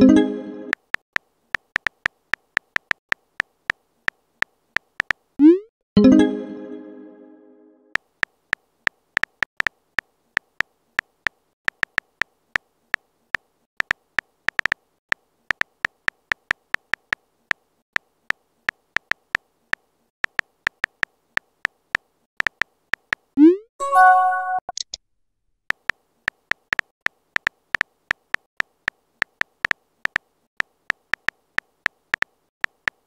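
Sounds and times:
on-screen keyboard clicks: 0.7s - 4.2s, 4.8s - 5.2s, 9.2s - 9.8s, 10.4s - 12.3s, 13.8s - 17.2s, 18.7s - 23.4s, 25.7s - 33.0s.

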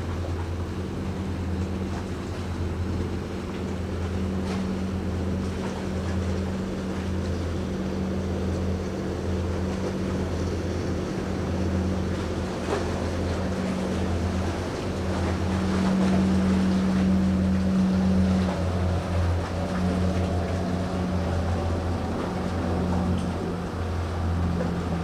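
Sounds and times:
ship engines droning: 0.0s - 25.0s
water noise: 0.0s - 25.0s
wind: 0.0s - 25.0s.

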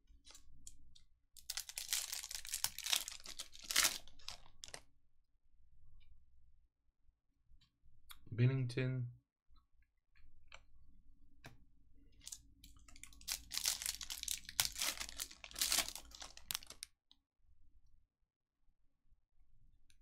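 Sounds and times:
foil wrapper crinkling and tearing: 1.4s - 4.8s, 12.2s - 16.9s.

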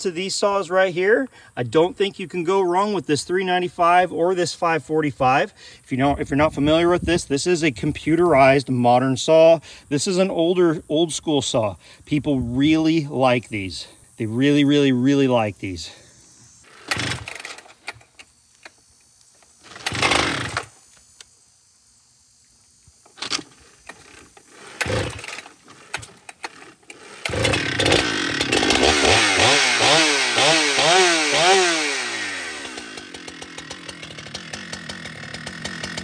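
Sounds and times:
chainsaw starting and revving: 16.6s - 18.2s, 19.4s - 20.9s, 23.2s - 36.0s.

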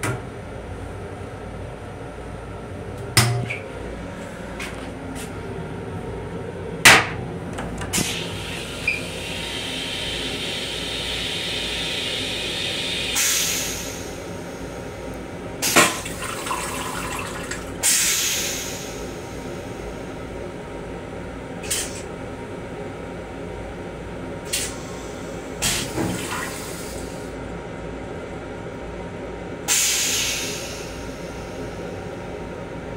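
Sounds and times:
toilet flushing water: 7.9s - 14.8s, 15.6s - 19.8s, 24.5s - 27.4s.

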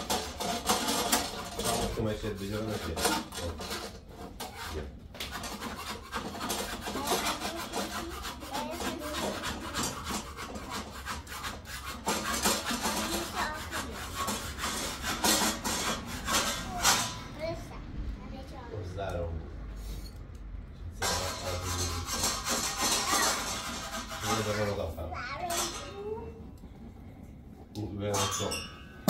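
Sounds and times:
rough scraping and rubbing: 0.0s - 17.8s, 21.0s - 26.4s.

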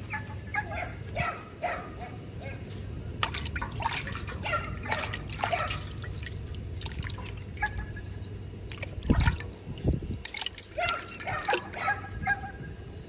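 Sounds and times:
water splashing in a metal pot: 3.2s - 7.6s, 8.6s - 11.8s.

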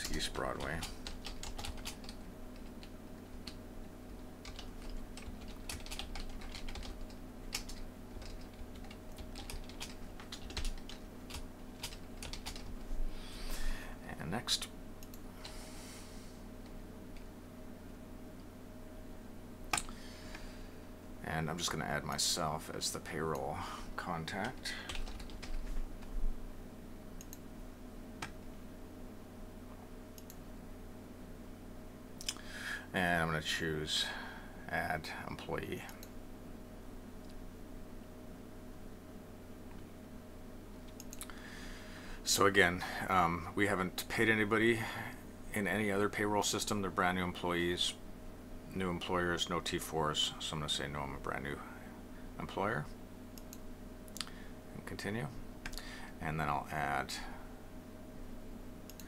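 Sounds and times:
computer keyboard typing: 0.0s - 3.6s, 4.4s - 12.8s, 24.4s - 25.8s
faint steady hum: 0.0s - 59.0s
computer mouse clicks: 30.2s - 30.4s.

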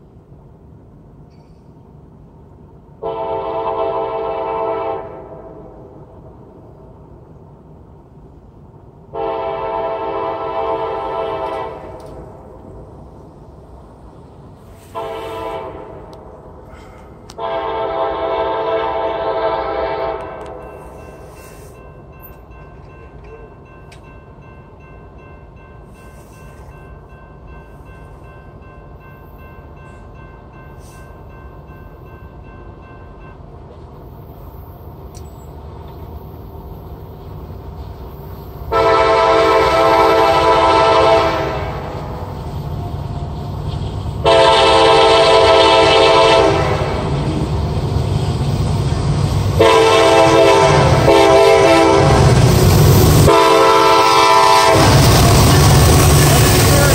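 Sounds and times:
train rumble: 0.0s - 56.9s
locomotive air horn blasts: 3.0s - 5.8s, 9.1s - 12.2s, 14.7s - 16.2s, 16.8s - 21.7s, 38.7s - 42.3s, 44.2s - 47.3s, 49.5s - 52.4s, 53.2s - 56.9s.

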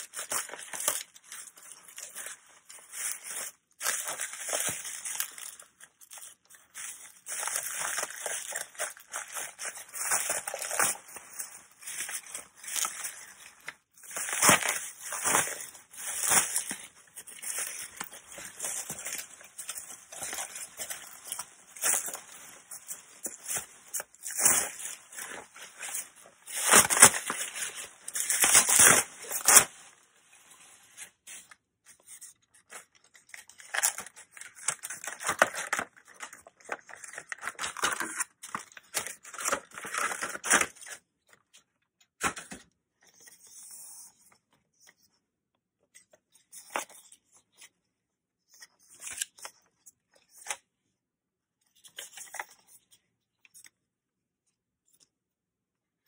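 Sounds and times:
bubble wrap crinkling: 0.0s - 31.6s, 32.6s - 41.0s.

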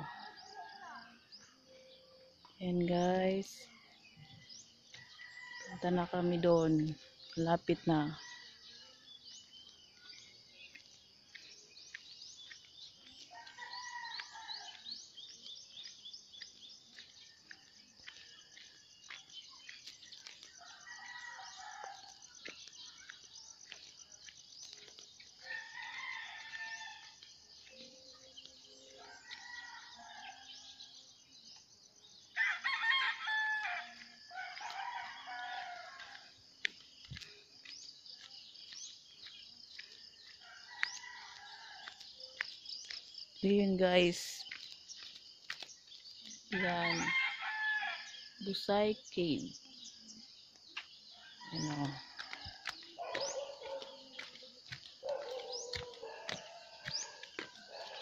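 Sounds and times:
roosters crowing: 20.6s - 22.1s, 32.4s - 36.2s, 46.5s - 48.2s.

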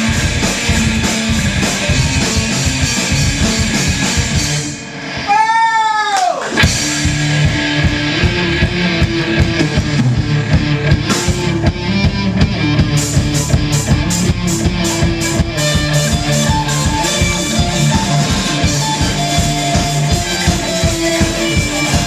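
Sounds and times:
rock band playing: 0.0s - 22.0s.

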